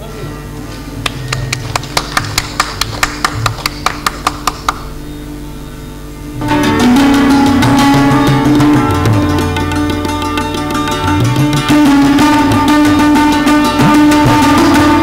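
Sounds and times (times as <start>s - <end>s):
plucked string instrument notes: 3.4s - 15.0s
instrumental music with drums: 6.3s - 15.0s.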